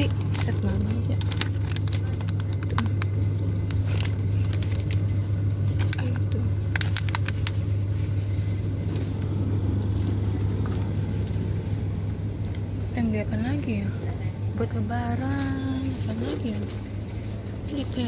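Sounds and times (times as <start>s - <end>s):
plastic packets crinkling: 0.0s - 8.2s
steady low hum: 0.0s - 18.0s.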